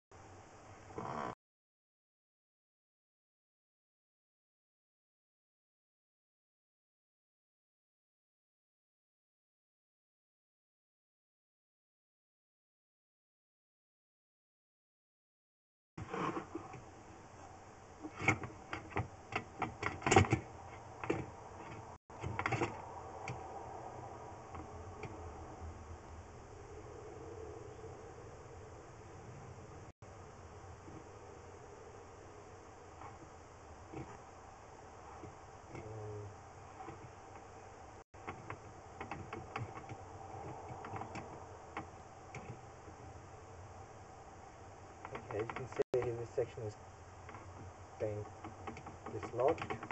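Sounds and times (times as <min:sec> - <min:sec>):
steady low hum: 0:16.0 - 0:49.9.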